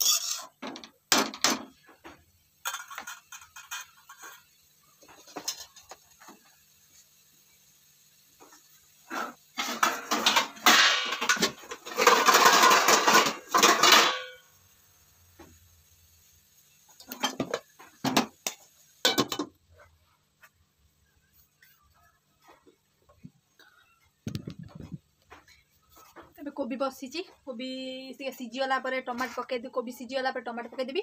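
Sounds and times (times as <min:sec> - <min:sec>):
steel dishes clattering: 0:00.0 - 0:01.6, 0:02.6 - 0:04.5, 0:09.1 - 0:14.4
metal lid clinking on wok: 0:09.6 - 0:14.4.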